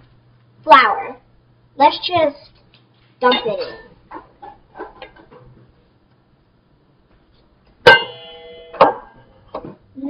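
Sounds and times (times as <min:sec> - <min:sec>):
metal mixing bowl knocked and ringing: 0:07.9 - 0:09.3.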